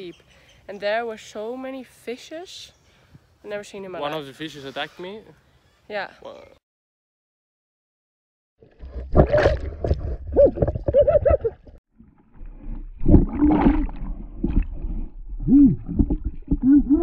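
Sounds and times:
underwater rumbling and gurgling: 8.6 - 17.0.

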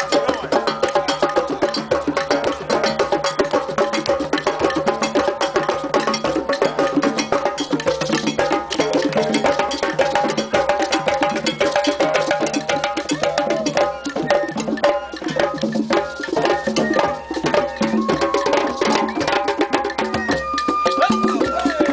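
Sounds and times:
hand drums playing rhythm: 0.0 - 21.9
flute playing held notes: 16.4 - 21.9.

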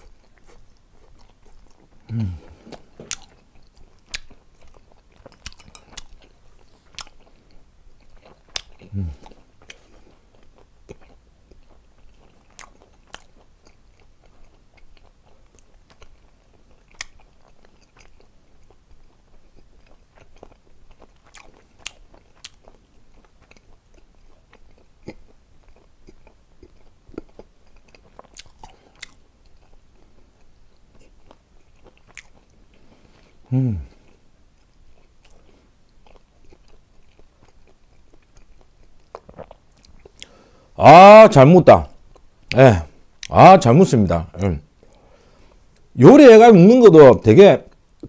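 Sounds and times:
person chewing dried squid: 0.0 - 41.3, 41.9 - 43.4, 44.3 - 46.0.

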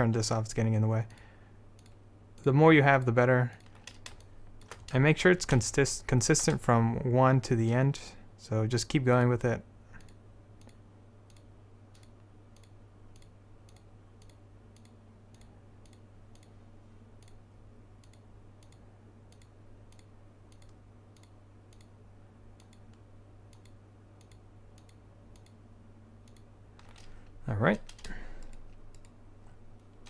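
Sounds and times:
steady low hum: 0.0 - 30.0
computer mouse clicking: 1.1 - 2.5, 3.5 - 5.0, 10.0 - 16.6, 18.0 - 22.0, 22.6 - 25.6, 26.2 - 27.1, 27.9 - 29.2.

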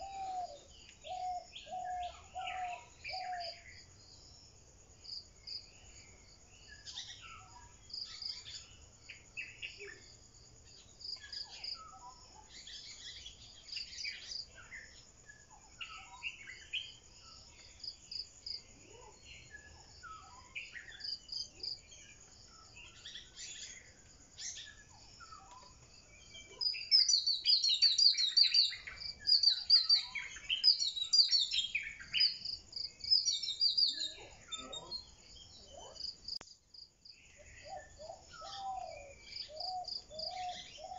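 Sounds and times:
birds chirping and calling: 0.0 - 3.7, 22.2 - 32.4, 33.0 - 36.1, 37.3 - 40.9
insect chirping: 0.0 - 40.9.

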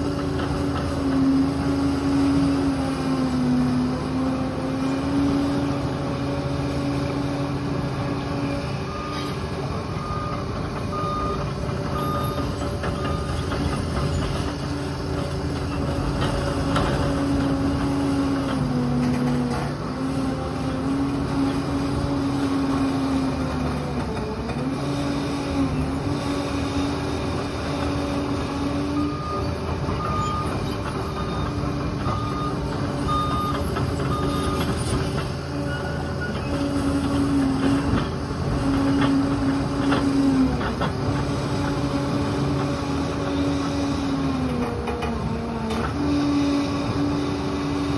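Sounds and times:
diesel engine running: 0.0 - 47.9
reversing alarm beeps: 8.9 - 13.4, 29.0 - 34.9, 35.6 - 36.6.

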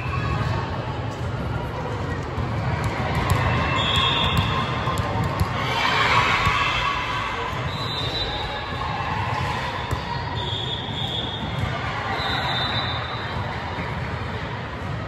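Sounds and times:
echoing crowd hubbub: 0.0 - 15.0
volleyball bouncing and struck: 2.8 - 5.6.

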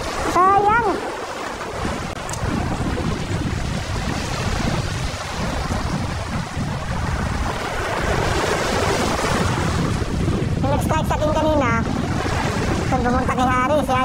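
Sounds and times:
waves splashing over rocks: 0.0 - 14.0
wind buffeting microphone: 0.0 - 14.0.

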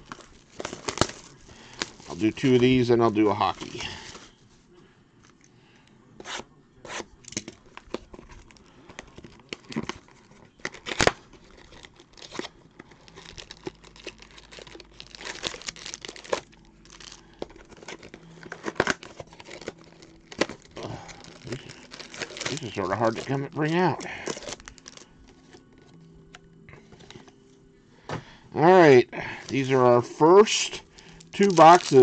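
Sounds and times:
plastic wrapper crinkling: 0.0 - 4.3, 7.6 - 26.0, 30.4 - 32.0.

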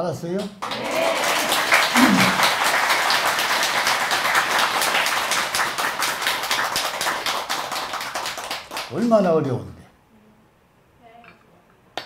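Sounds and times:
audience applause: 0.6 - 9.0.

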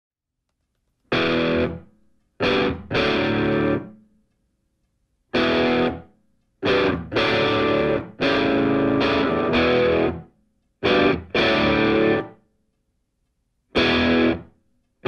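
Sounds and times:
distorted electric guitar chords: 1.1 - 4.0, 5.3 - 12.4, 13.8 - 14.5.

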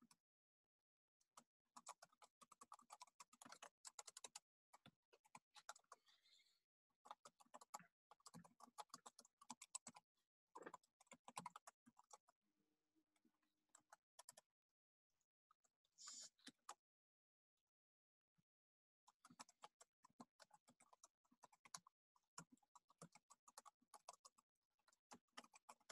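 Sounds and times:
typing on keyboard: 1.8 - 6.1, 7.0 - 12.2, 13.7 - 14.5, 19.1 - 25.9.

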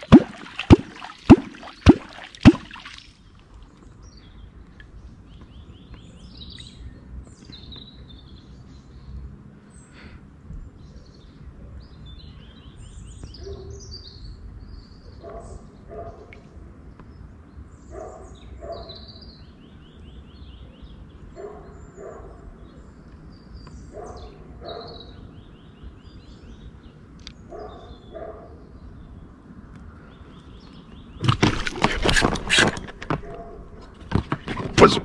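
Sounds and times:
small birds chirping: 0.0 - 35.0
dog barking: 13.4 - 13.8, 15.2 - 16.3, 17.9 - 19.1, 21.4 - 22.4, 23.9 - 25.2, 27.5 - 28.6, 33.2 - 33.8.

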